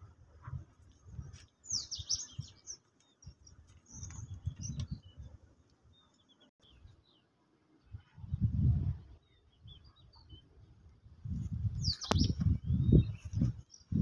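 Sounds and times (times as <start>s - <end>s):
small birds chirping: 0.8s - 8.2s, 9.0s - 14.0s
low rumbling on microphone: 7.9s - 14.0s.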